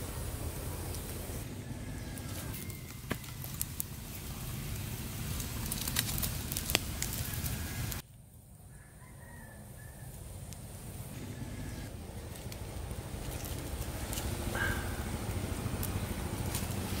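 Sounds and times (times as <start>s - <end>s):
fire crackling and popping: 0.0s - 8.3s, 11.8s - 17.0s
fire burning with low rush: 0.0s - 17.0s.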